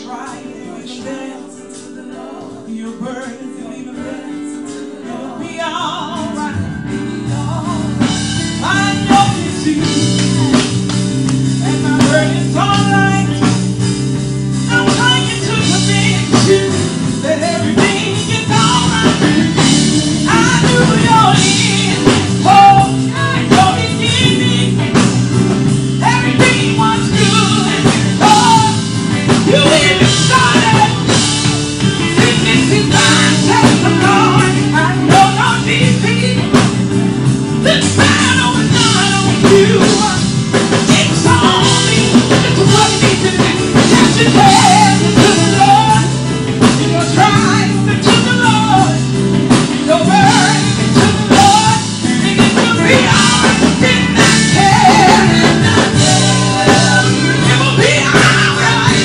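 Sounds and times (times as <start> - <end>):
women's choir singing gospel: 0.0 - 36.8, 37.6 - 49.2, 49.8 - 59.0
band accompaniment with drums: 5.9 - 59.0.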